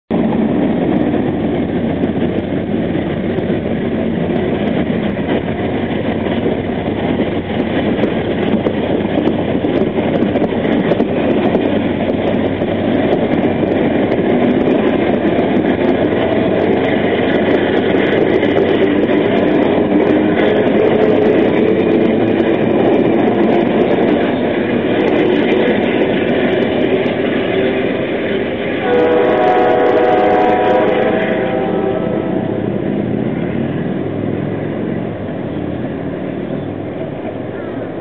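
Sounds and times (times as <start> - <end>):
diesel locomotive working: 0.1 - 38.0
train wheels rolling on rails: 0.1 - 38.0.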